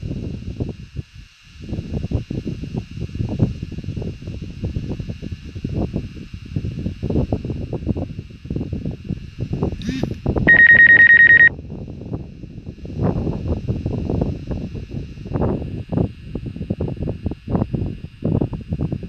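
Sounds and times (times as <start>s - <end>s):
wind buffeting microphone: 0.0s - 10.6s, 11.5s - 19.0s
faint high whine: 9.8s - 11.6s
fast-pulsing electronic alert beep: 9.9s - 11.5s.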